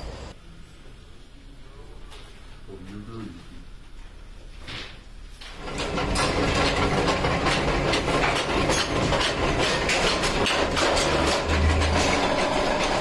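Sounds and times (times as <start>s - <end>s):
workshop machinery clattering: 5.5s - 13.0s.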